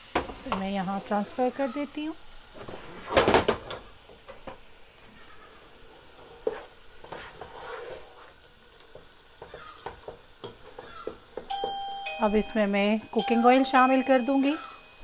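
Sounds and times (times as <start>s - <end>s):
light sizzle from pan: 0.0s - 15.0s
spoon stirring and scraping pot: 6.1s - 11.0s
spoon knocking pot: 8.9s - 11.8s.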